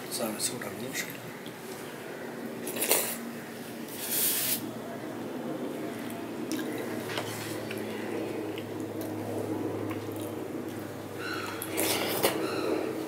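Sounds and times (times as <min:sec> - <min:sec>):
wet mouth eating sounds: 0:06.0 - 0:07.0, 0:09.8 - 0:12.4.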